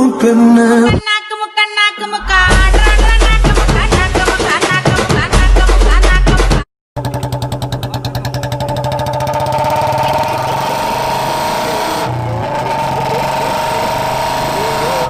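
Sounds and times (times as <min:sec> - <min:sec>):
engine running: 0:07.0 - 0:15.0.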